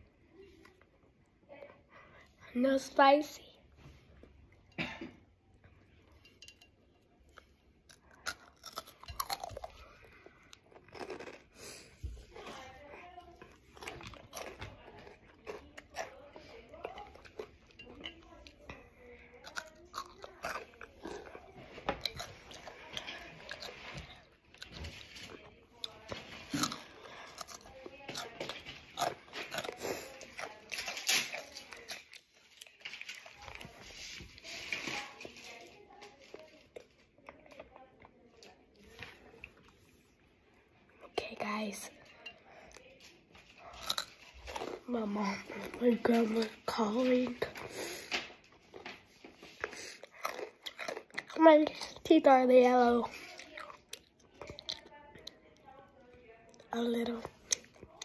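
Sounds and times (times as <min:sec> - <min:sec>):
child chewing crunchy chips: 0:07.2 - 0:55.8, 0:56.4 - 0:58.0.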